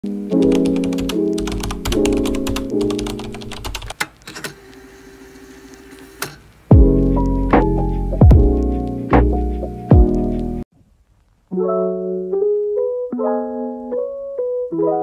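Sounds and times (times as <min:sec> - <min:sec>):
background music with held chords: 0:00.0 - 0:03.6, 0:06.7 - 0:10.6, 0:11.5 - 0:15.0
keyboard typing clicks: 0:00.4 - 0:04.6.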